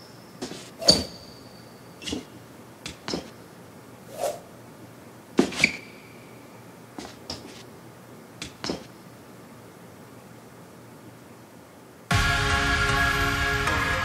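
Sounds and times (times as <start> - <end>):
fencing blades clashing: 0.0 - 3.5, 5.4 - 7.7, 8.4 - 9.0.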